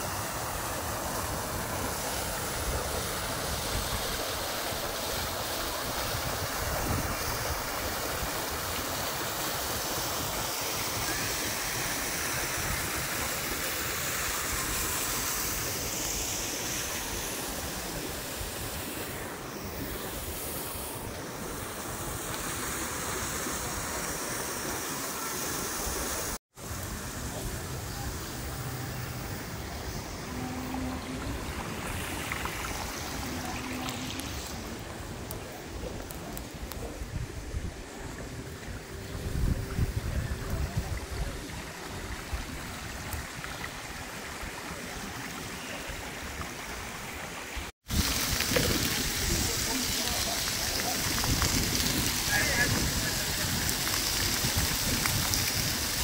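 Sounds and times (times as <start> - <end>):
faint street ambience: 0.0 - 56.0
fountain jets splashing: 0.0 - 56.0
water trickling down cascade: 0.0 - 56.0
wind buffeting microphone: 36.7 - 41.6, 47.9 - 56.0.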